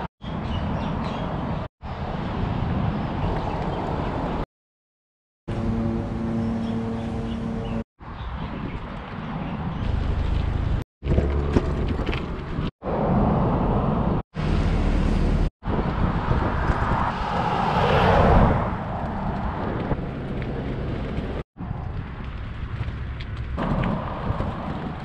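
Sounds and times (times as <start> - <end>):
passing traffic: 5.5 - 8.4, 9.1 - 25.0
wind noise on microphone: 7.6 - 10.8, 15.1 - 25.0.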